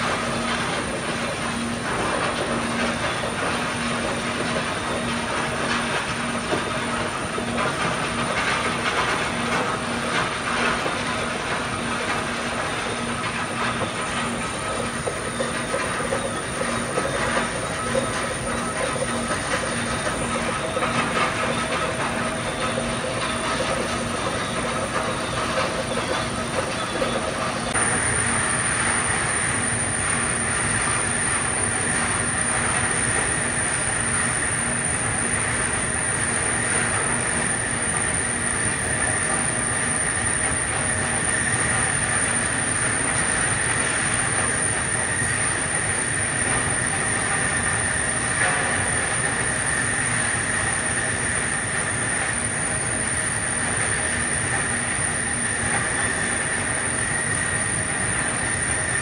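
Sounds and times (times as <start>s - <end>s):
belt conveyor running: 0.0s - 59.0s
high-pitched whine: 0.0s - 59.0s.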